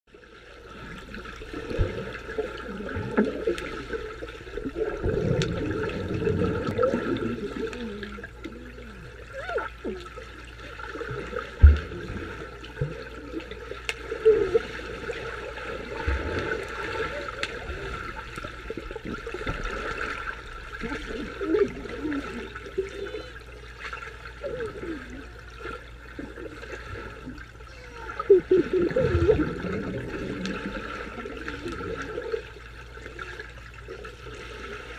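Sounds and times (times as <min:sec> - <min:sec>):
underwater sloshing and bubbling: 0:00.1 - 0:34.9
dull underwater thumps: 0:11.5 - 0:12.4.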